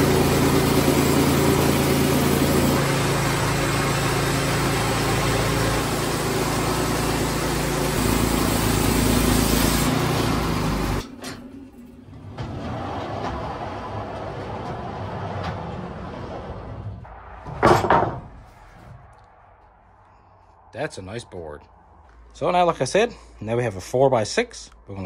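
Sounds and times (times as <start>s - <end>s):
band blade cutting wood: 0.0s - 11.0s
sawmill engine running: 0.0s - 18.2s.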